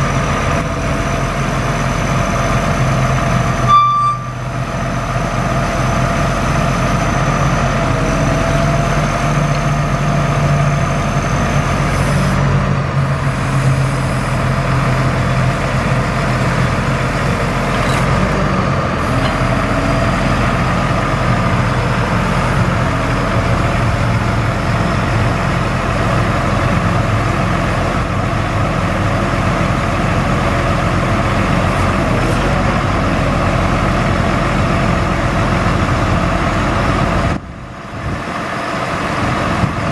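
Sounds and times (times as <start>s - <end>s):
truck engine running: 0.0s - 39.9s
hydraulic whine: 2.0s - 28.6s.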